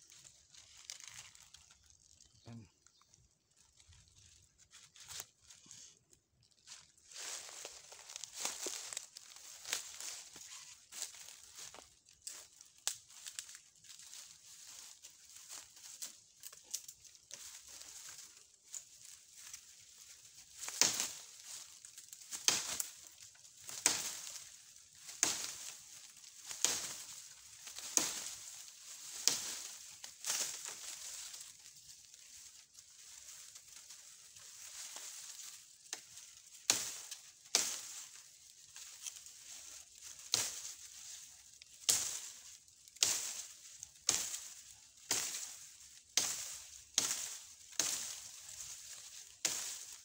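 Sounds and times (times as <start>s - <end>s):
dry leaves rustling: 0.0s - 50.0s.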